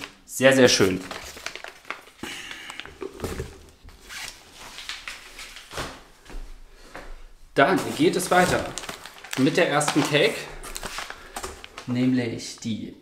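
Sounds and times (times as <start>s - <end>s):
rustling cardboard and paper: 0.7s - 2.2s, 7.6s - 12.0s.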